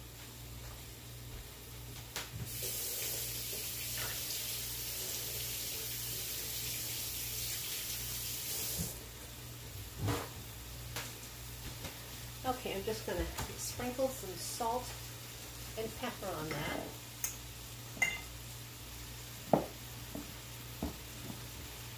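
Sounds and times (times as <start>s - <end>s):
faucet running: 2.5s - 9.0s.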